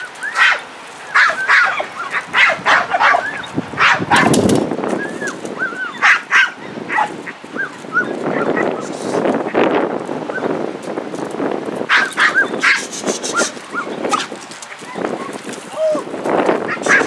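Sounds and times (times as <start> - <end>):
dog barking: 0.3 - 4.4, 5.9 - 8.8, 11.9 - 14.4, 16.7 - 17.0
dog whining: 5.0 - 8.8, 11.9 - 15.9.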